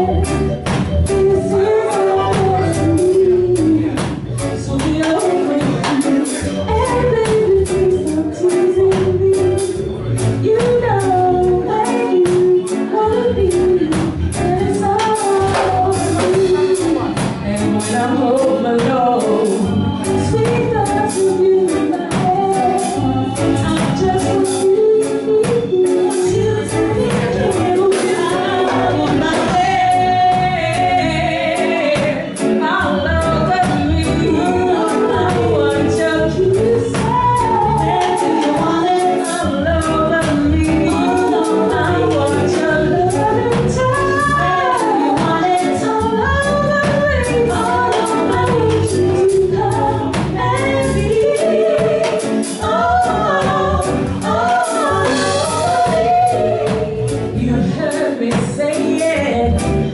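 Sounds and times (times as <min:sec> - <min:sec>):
drums: 0:00.0 - 0:59.9
electric guitar: 0:00.0 - 0:59.9
woman singing lead: 0:00.0 - 0:59.9
women's backing harmonies: 0:00.0 - 0:59.9.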